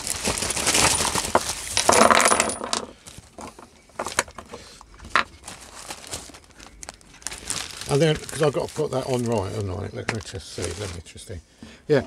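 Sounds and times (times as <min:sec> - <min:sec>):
metal bolts clattering into container: 0:00.8 - 0:03.6.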